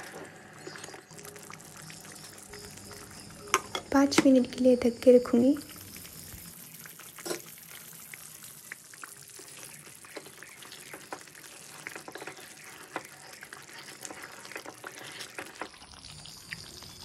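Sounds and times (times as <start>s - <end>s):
thick gravy bubbling and popping: 0.0s - 4.5s, 5.4s - 17.0s
wooden spatula stirring: 9.0s - 15.9s.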